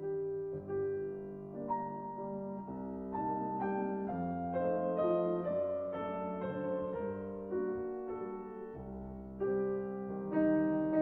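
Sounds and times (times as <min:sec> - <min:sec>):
slow piano music: 0:00.0 - 0:11.0.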